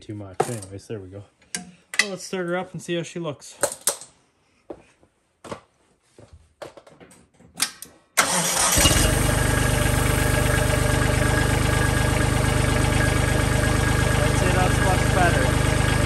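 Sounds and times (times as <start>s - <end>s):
diesel tractor engine starting and idling: 8.2s - 16.0s.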